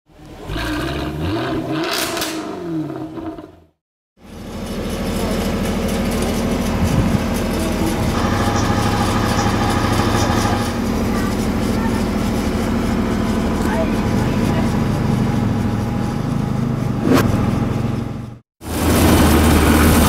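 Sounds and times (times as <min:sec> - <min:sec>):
truck engine running: 0:03.2 - 0:20.0
whoosh: 0:16.9 - 0:17.9.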